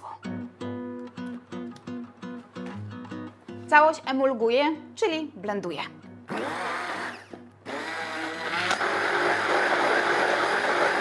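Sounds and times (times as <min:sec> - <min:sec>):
immersion blender running: 0:06.3 - 0:11.0.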